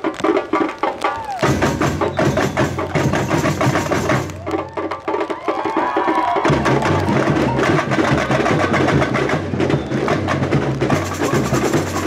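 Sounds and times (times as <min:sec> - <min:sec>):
rhythmic snare drums: 0:00.0 - 0:12.0
wooden percussion strokes: 0:00.0 - 0:12.0.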